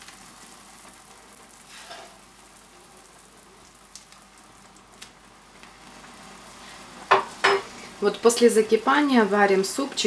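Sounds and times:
soup bubbling at the boil: 0:00.0 - 0:08.0.

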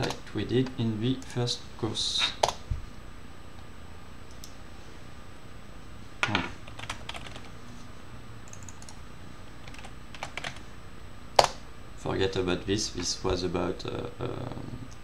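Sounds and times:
keyboard typing: 0:06.6 - 0:07.5, 0:08.5 - 0:09.0, 0:09.6 - 0:10.6.

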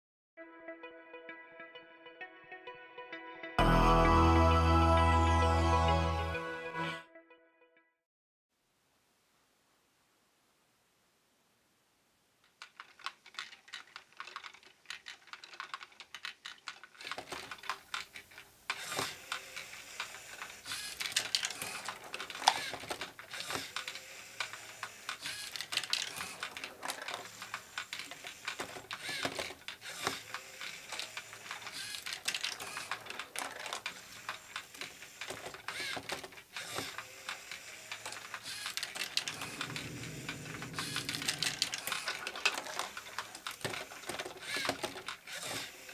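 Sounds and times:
plastic balls clicking through tracks: 0:12.4 - 0:45.9.

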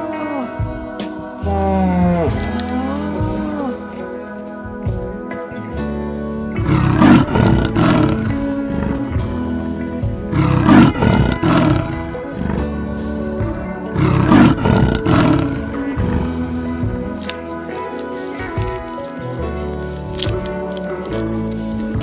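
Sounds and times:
background music: 0:00.0 - 0:22.0
big cat roaring: 0:06.6 - 0:09.4, 0:10.3 - 0:13.0, 0:13.9 - 0:16.5.

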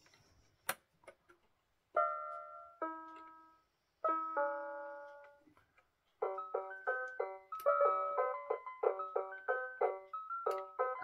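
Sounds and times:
toy keyboard electronic tones: 0:06.2 - 0:11.0.

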